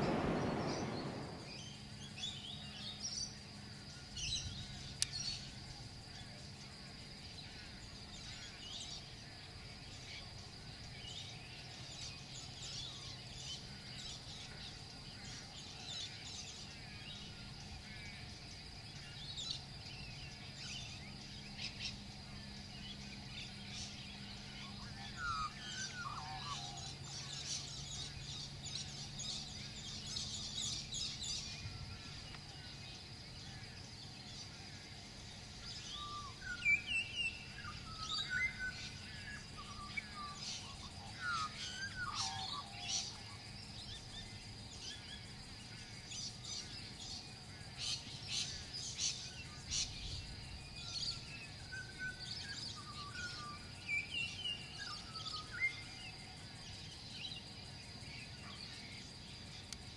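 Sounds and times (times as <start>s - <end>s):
lower falling bird call: 0.0s - 2.9s
birds chirping: 0.0s - 59.9s.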